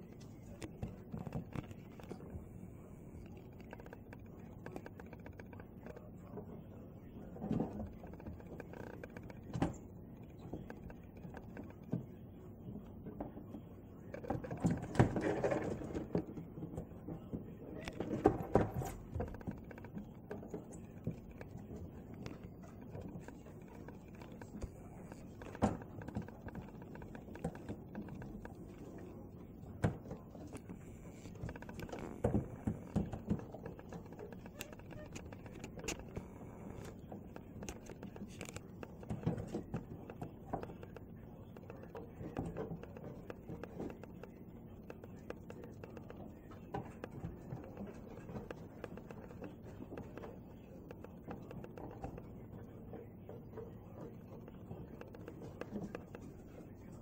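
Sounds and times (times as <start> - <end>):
crows tapping on glass: 17.7 - 57.0.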